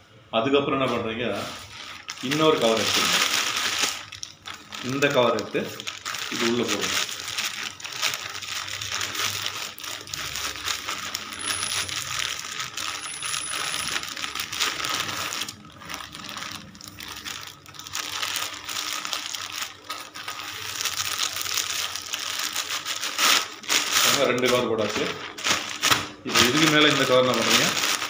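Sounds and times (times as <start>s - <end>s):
plastic bags crinkling: 1.3s - 28.0s.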